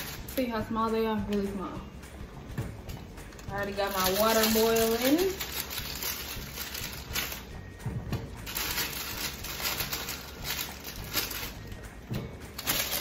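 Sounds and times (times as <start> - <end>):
plastic bag crinkling: 0.0 - 0.4, 3.2 - 7.6, 8.4 - 11.8, 12.6 - 13.0.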